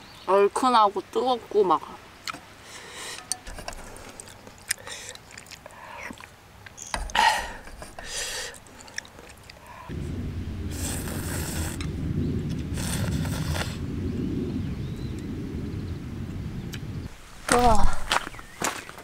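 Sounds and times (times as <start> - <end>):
steady low rumble: 9.6 - 18.6
short louder rushes: 9.9 - 17.0.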